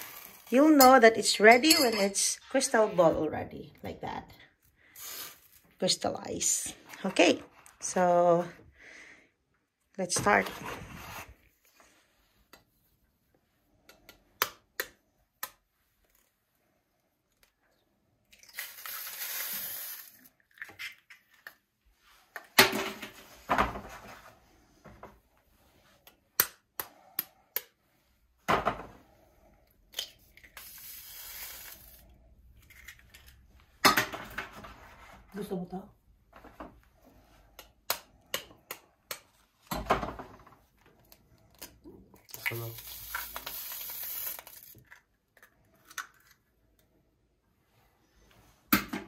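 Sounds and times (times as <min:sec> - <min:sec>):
egg sizzling in a skillet: 0:18.4 - 0:20.3, 0:42.4 - 0:44.8.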